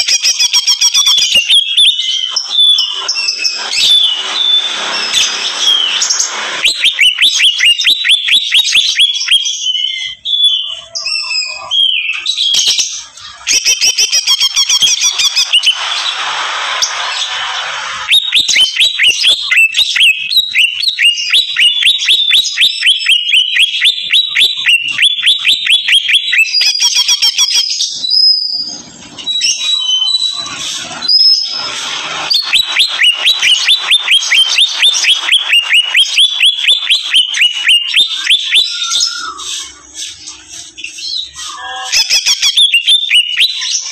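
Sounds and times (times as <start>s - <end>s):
bird singing rapid sharp notes: 0.0s - 16.2s, 16.8s - 43.9s.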